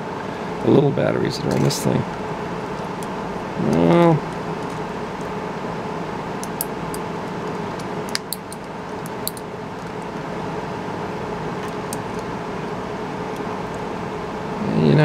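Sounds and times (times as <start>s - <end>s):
hum of fans and air conditioner: 0.0s - 15.0s
sharp plastic clicks and snaps: 7.8s - 9.4s.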